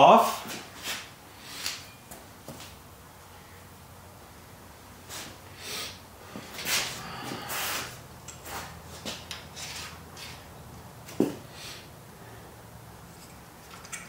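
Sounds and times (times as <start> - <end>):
metal parts scraping and rattling: 13.1 - 14.0.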